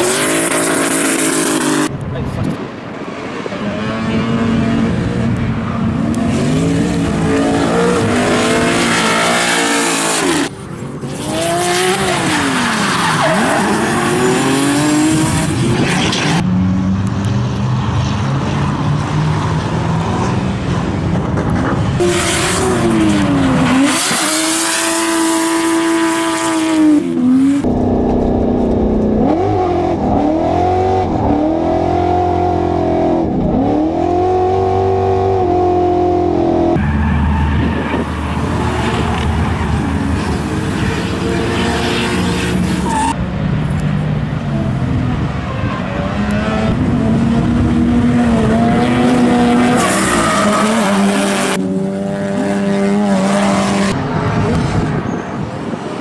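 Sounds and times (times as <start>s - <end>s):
car engines revving hard: 0.0s - 56.0s
tyres squealing and skidding: 11.1s - 16.4s, 36.6s - 43.2s, 49.6s - 51.6s.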